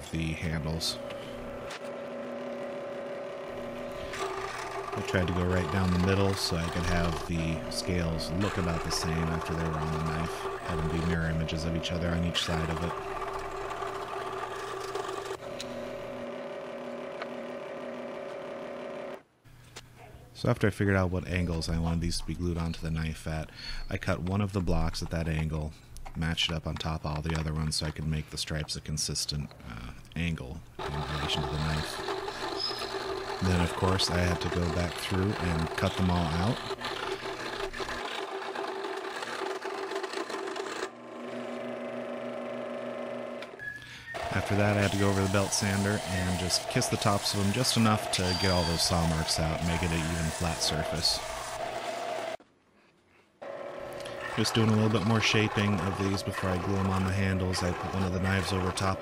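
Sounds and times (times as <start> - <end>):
scroll saw motor hum: 0.5 - 19.2, 30.8 - 52.4, 53.4 - 59.0.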